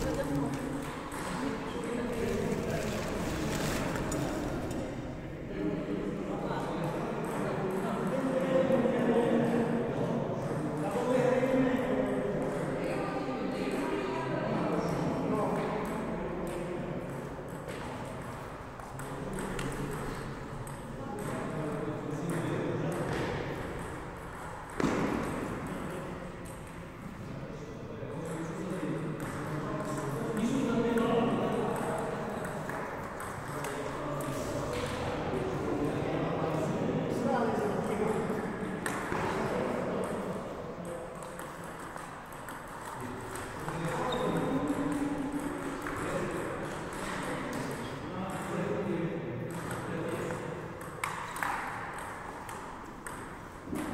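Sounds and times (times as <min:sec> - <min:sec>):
table tennis balls ticking: 0:40.0 - 0:47.3.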